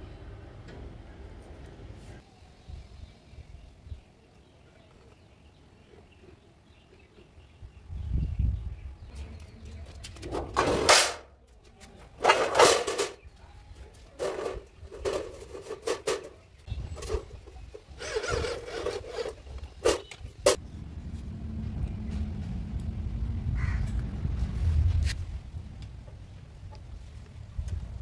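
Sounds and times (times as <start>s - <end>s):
steady low rumble: 20.6s - 28.0s.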